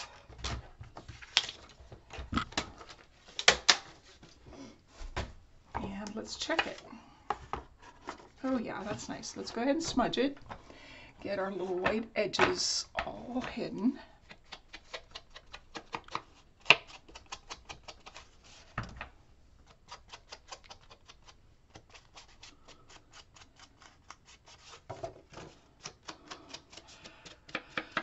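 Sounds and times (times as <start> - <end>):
tool tapping on paper: 27.0 - 28.0.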